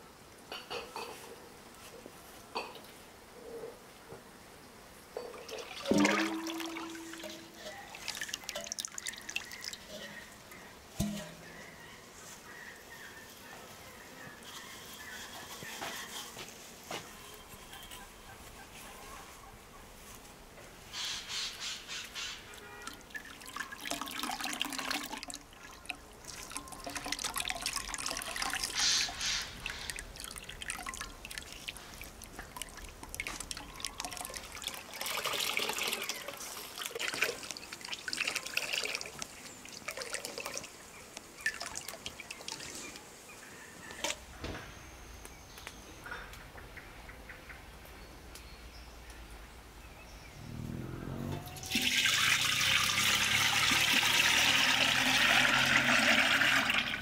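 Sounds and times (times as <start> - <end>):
juice dripping and trickling: 5.3 - 11.5, 22.5 - 43.1, 51.6 - 57.0
juice pouring into a pot: 5.4 - 10.0, 22.9 - 40.8, 51.6 - 57.0.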